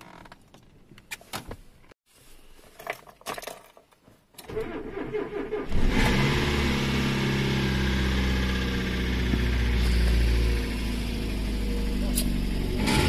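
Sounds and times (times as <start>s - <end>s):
car engine idling: 7.0s - 13.0s.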